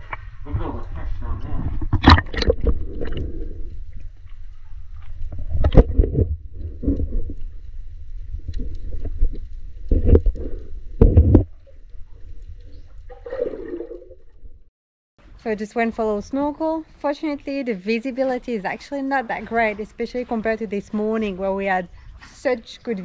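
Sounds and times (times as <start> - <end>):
low underwater rumble: 0.0 - 14.7
gurgling bubble bursts: 0.5 - 3.9, 13.1 - 14.3.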